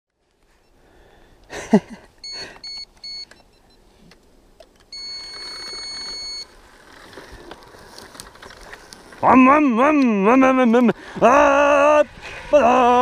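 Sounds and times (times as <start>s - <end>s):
electronic beeps: 2.2s - 3.8s, 4.9s - 6.5s.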